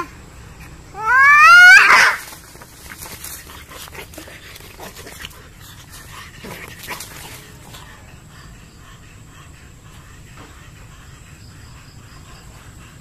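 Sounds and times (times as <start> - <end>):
cat yowling and screeching: 1.0 - 2.3
cats scuffling: 2.1 - 7.8.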